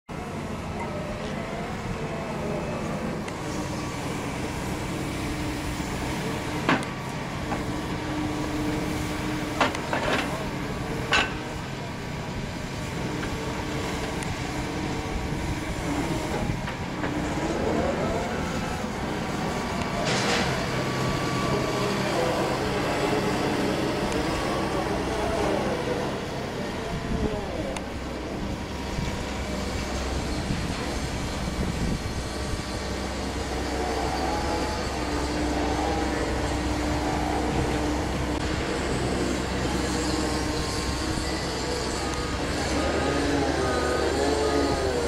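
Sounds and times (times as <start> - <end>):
machinery engine running: 0.1 - 45.0.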